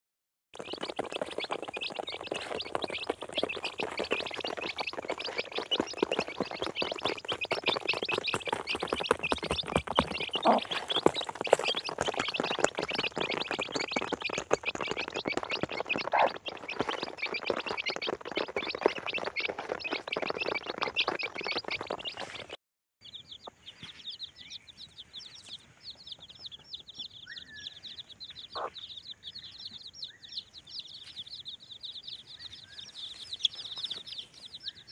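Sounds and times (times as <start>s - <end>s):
beaks tapping on cardboard: 0.6s - 22.5s
chicks peeping: 0.6s - 34.9s.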